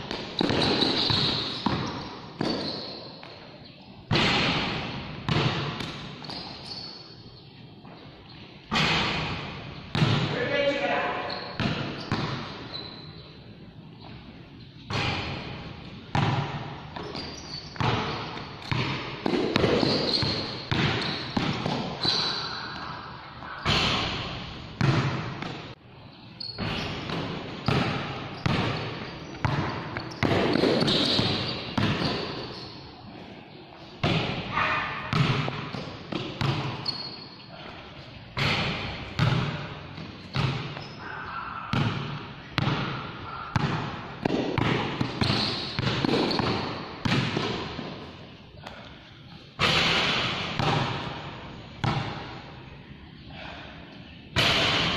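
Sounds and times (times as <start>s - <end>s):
basketball bouncing on concrete: 0.0s - 3.3s, 4.1s - 6.4s, 8.7s - 10.3s, 11.6s - 12.5s, 16.1s - 21.9s, 23.7s - 25.6s, 26.6s - 32.4s, 35.1s - 36.9s, 38.4s - 40.9s, 41.7s - 47.9s.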